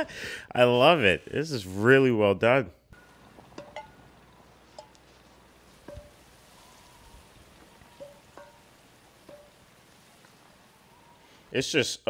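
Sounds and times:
tin cans clinking: 0:03.0 - 0:05.2
soft steady hiss: 0:03.0 - 0:12.0.

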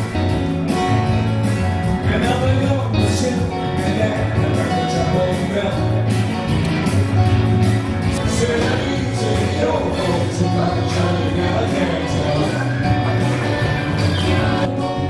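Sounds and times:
live band playing: 0:00.0 - 0:15.0
person singing: 0:08.0 - 0:15.0.

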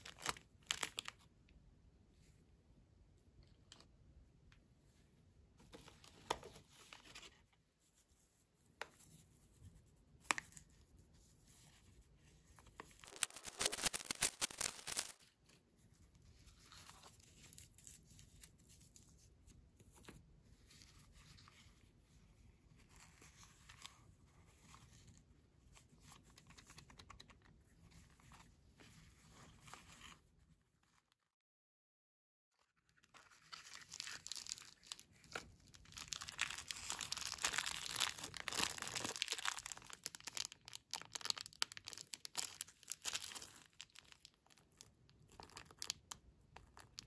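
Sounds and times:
wrapper crinkling: 0:00.0 - 0:01.2, 0:12.8 - 0:15.3, 0:33.1 - 0:47.0
wrapper tearing: 0:00.0 - 0:01.2, 0:13.0 - 0:15.2, 0:33.2 - 0:35.0, 0:35.8 - 0:44.6.

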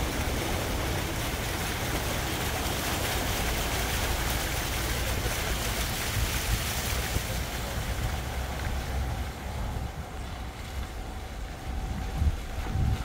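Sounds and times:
vehicle rumble: 0:00.0 - 0:13.0
wind buffeting microphone: 0:00.0 - 0:13.0.

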